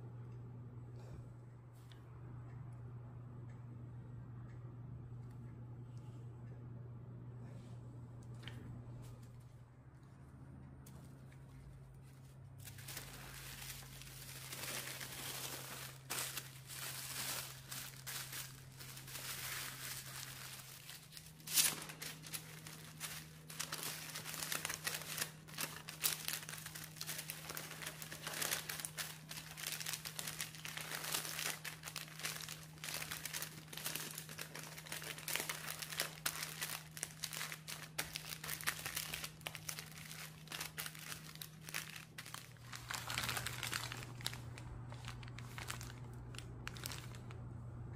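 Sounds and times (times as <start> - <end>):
paper and foil crinkling: 10.8 - 47.9.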